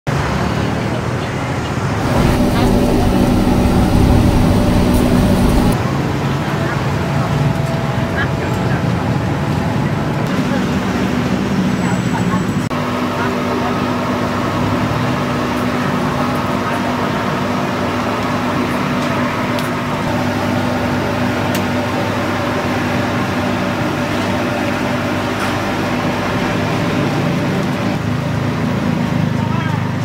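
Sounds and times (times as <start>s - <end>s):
steady mechanical hum: 2.0s - 5.8s.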